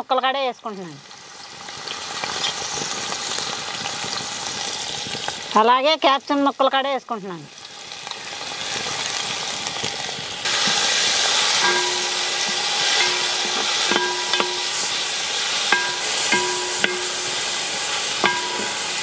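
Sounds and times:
vegetables sizzling in hot oil: 0.0 - 19.0
metal spatula scraping a pot: 10.6 - 19.0
metal pot ringing: 11.2 - 19.0.

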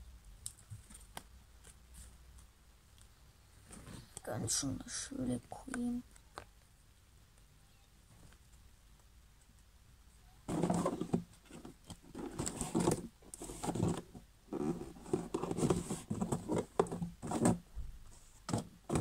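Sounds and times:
cards and card box handled: 10.5 - 17.6.

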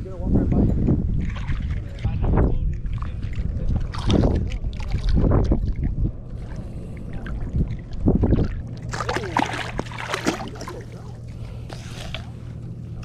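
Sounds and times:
wind: 0.0 - 13.0
lapping water: 0.8 - 13.0
fish thrashing and splashing: 7.1 - 12.4.

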